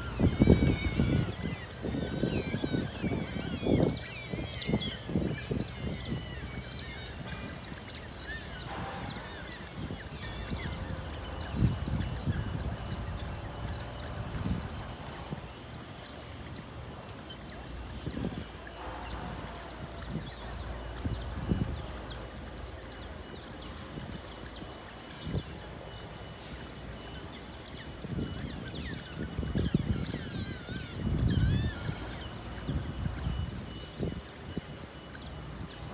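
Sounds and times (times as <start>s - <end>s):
otters chirping and squeaking: 0.0s - 35.9s.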